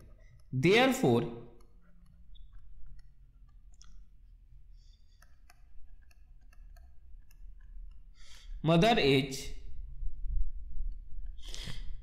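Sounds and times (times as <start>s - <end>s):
stylus tapping on tablet: 0.0s - 8.4s.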